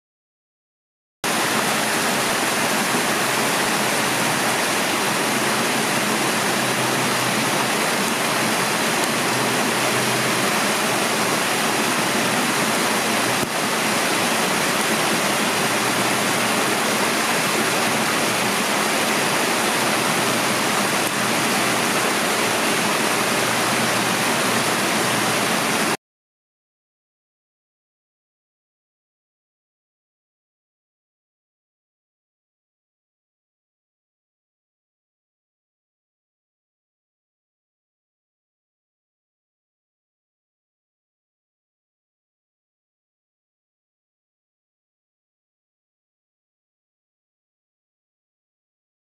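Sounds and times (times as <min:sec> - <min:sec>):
creek water rushing over rocks: 0:01.3 - 0:26.0.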